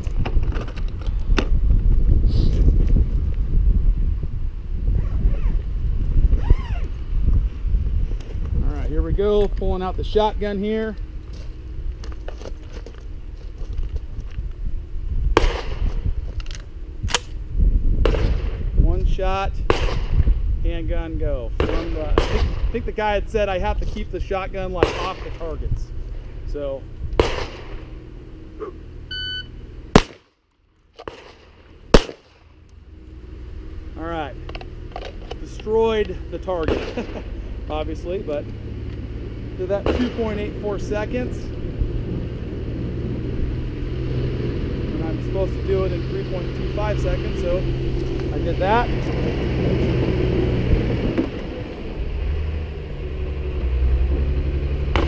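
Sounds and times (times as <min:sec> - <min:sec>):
diesel engine running: 0:05.6 - 0:19.7, 0:20.4 - 0:30.0, 0:30.6 - 0:55.0
loud shotgun shot: 0:15.4 - 0:15.9, 0:18.0 - 0:18.6, 0:19.7 - 0:20.3, 0:21.6 - 0:22.7, 0:24.8 - 0:25.4, 0:27.2 - 0:27.8, 0:30.0 - 0:30.3, 0:31.0 - 0:32.5, 0:36.6 - 0:37.3, 0:39.8 - 0:40.5
electronic timer beep: 0:29.1 - 0:29.5.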